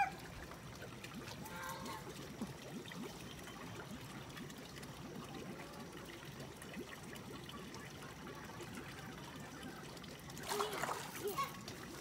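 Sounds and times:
water trickling and bubbling: 0.0s - 12.0s.

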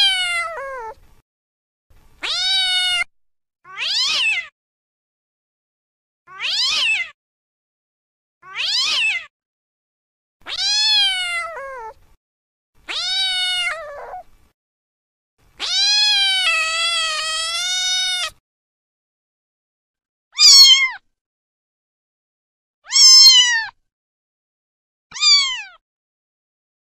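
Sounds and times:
cat meowing: 0.0s - 1.0s, 2.2s - 3.1s, 3.7s - 4.5s, 6.3s - 7.2s, 8.4s - 9.3s, 10.5s - 12.0s, 12.9s - 14.2s, 15.6s - 18.4s, 20.4s - 21.0s, 22.9s - 23.8s, 25.1s - 25.8s.

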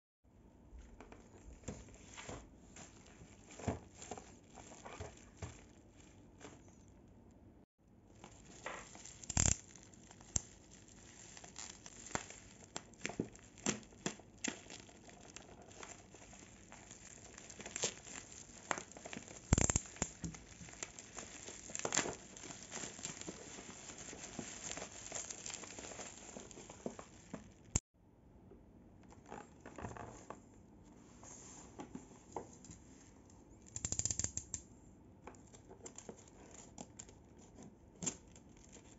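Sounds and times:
bubble wrap crackling: 1.9s - 7.0s, 8.0s - 27.8s, 35.8s - 38.9s.

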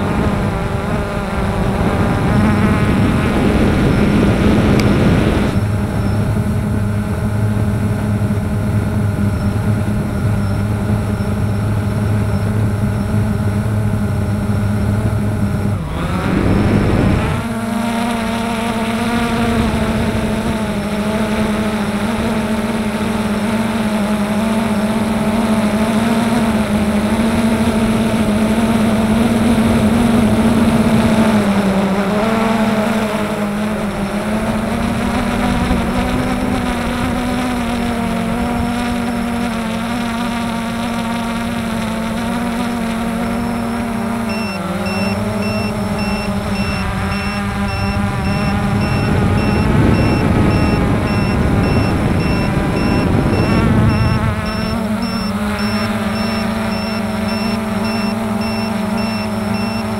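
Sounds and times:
model aircraft motor humming: 0.0s - 59.9s
high beep: 44.3s - 59.9s.

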